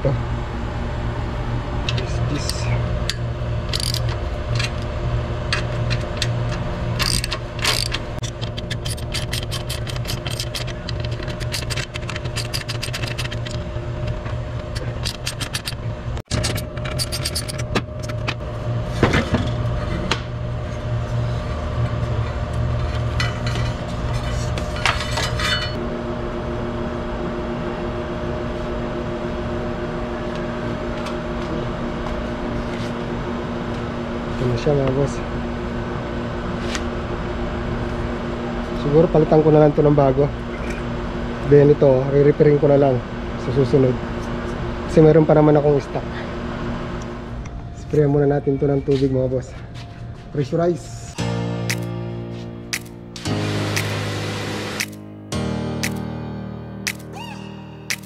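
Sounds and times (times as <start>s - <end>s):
steady machine hum: 0.0s - 58.0s
socket ratchet clicking: 3.7s - 4.2s, 7.0s - 13.5s, 14.8s - 15.8s, 16.5s - 17.6s, 51.7s - 51.9s, 52.7s - 52.9s, 53.8s - 54.0s, 54.8s - 55.0s, 56.9s - 57.1s.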